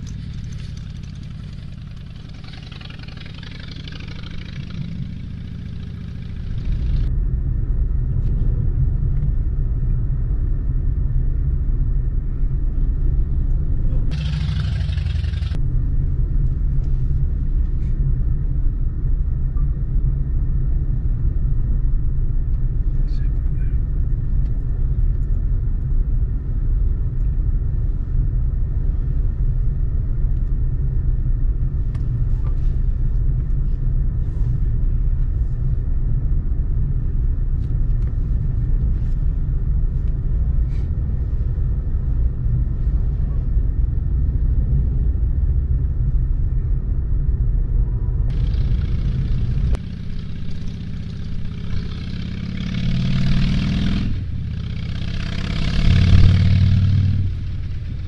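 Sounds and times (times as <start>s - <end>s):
motorcycles passing: 0.0s - 7.1s, 14.1s - 15.6s, 48.3s - 58.0s
car road rumble: 0.0s - 58.0s.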